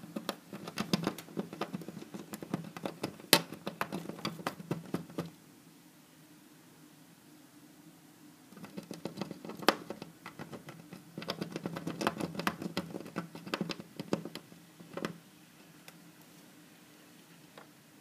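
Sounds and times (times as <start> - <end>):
squirrel scratching at window: 0.0 - 5.4, 8.5 - 15.2.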